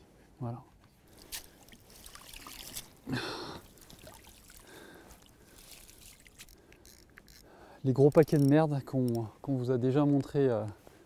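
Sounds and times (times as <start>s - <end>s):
water trickling and splashing: 1.1s - 7.4s.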